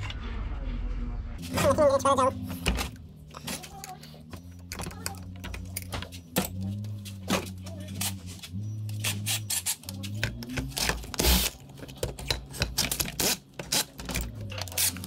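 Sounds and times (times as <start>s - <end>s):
metal tools clicking and clinking: 3.2s - 7.0s, 8.9s - 15.0s.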